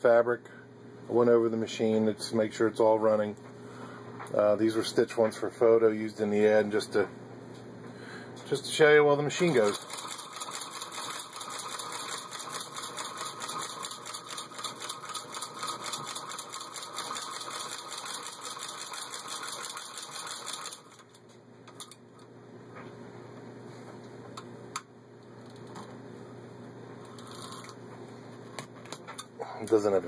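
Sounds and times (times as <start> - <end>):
hand-crank sewing machine clatter: 9.5 - 21.0.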